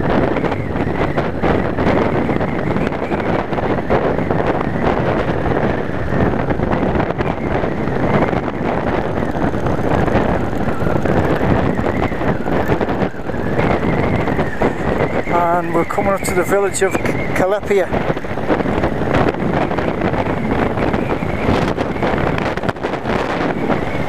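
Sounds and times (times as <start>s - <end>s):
motorcycle engine running: 0.0s - 15.6s
wind rushing over microphone: 0.0s - 24.0s.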